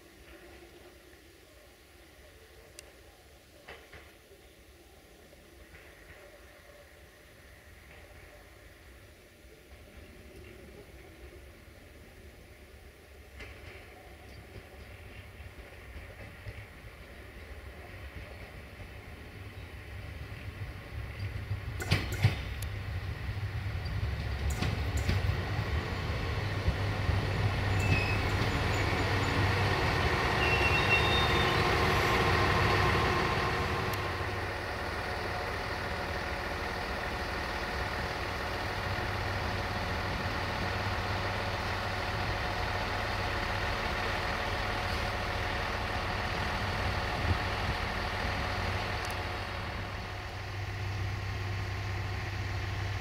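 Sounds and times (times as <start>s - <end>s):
diesel train engine and wheels: 0.0s - 53.0s
short high squeaks: 27.7s - 29.1s, 30.4s - 31.7s.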